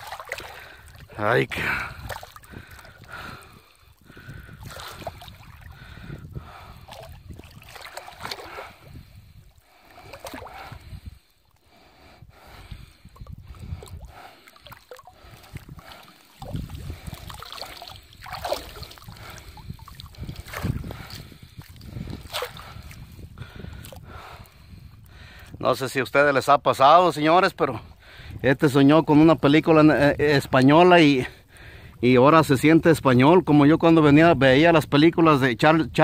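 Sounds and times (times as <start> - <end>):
water sloshing and dripping: 0.0 - 24.6.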